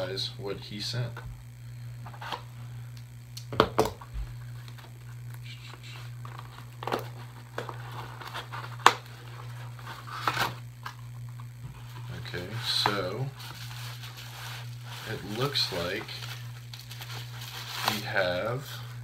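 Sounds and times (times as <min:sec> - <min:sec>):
steady low hum: 0:00.0 - 0:19.0
cardboard scrapes and rustles: 0:06.2 - 0:10.6, 0:11.7 - 0:18.1.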